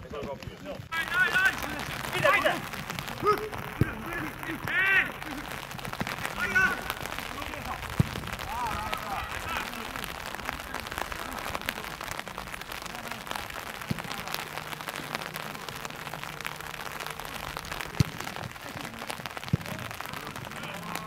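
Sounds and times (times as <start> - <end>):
crackling patter of ticks: 0.0 - 21.0
football being kicked: 7.5 - 8.5.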